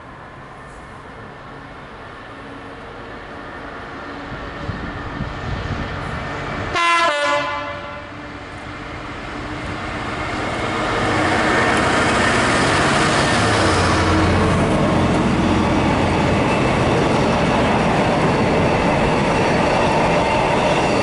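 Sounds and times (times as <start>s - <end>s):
diesel locomotive engine: 0.0s - 21.0s
train wheel noise: 0.0s - 21.0s
diesel locomotive horn blast: 6.7s - 8.3s.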